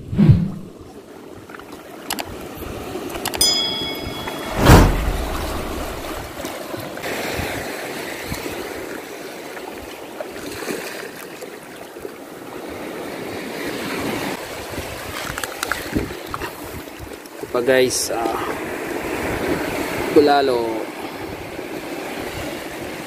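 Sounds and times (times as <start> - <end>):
water lapping around rocks: 6.8 - 17.4.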